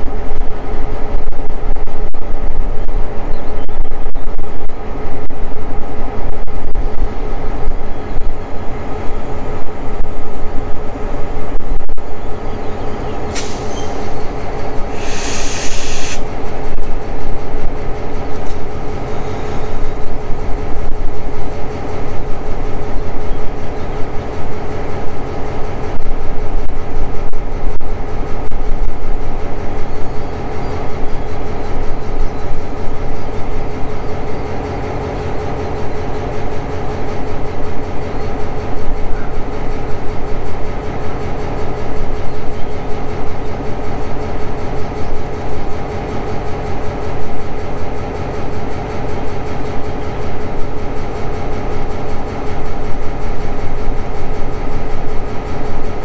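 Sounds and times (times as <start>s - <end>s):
locomotive engine idling: 4.7s - 56.0s
short high hiss: 13.3s - 14.1s, 14.9s - 16.3s.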